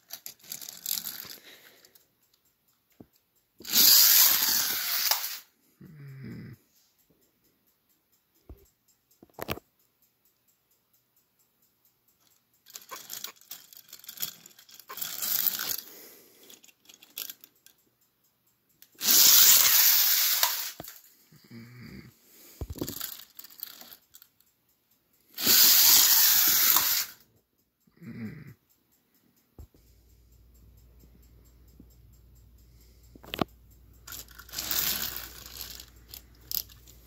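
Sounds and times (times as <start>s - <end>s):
toys clattering and knocking: 0.0s - 5.5s, 9.2s - 9.8s, 12.1s - 17.9s, 18.7s - 21.1s, 22.5s - 24.6s, 25.4s - 27.3s, 33.2s - 37.0s
toy trains rattling on plastic track: 0.0s - 5.6s, 11.8s - 27.3s, 32.8s - 37.0s.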